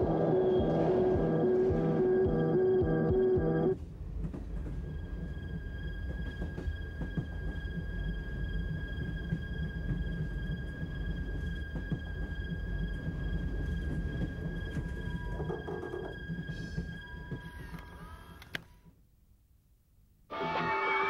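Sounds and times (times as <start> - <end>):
high whine: 0.0 - 3.8
train rumbling on rails: 0.0 - 18.3
music: 0.0 - 18.7, 20.3 - 21.0.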